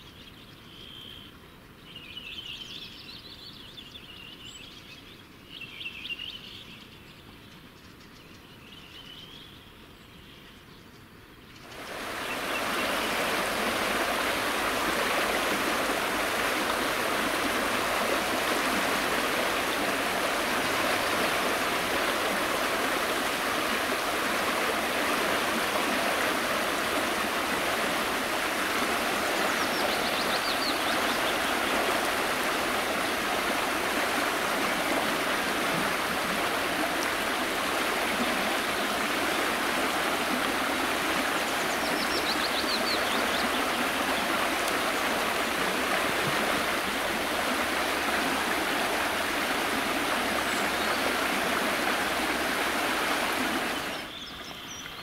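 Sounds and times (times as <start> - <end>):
river rapids roaring: 11.7 - 54.1.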